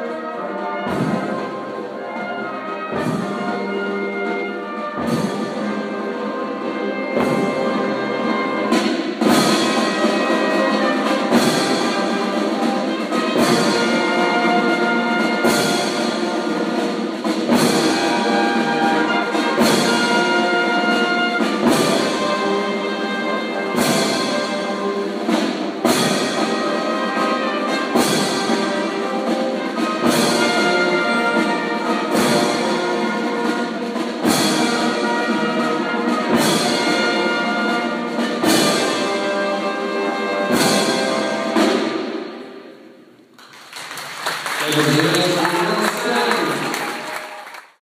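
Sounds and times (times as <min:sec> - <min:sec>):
brass instruments holding chords: 0:00.0 - 0:42.2
side drum: 0:00.7 - 0:06.0, 0:07.0 - 0:42.1
bass drum beating: 0:00.9 - 0:01.8.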